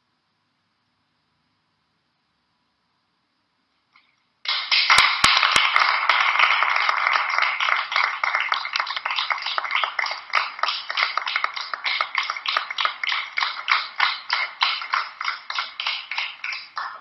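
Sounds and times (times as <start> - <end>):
audience applauding: 4.5 - 17.0.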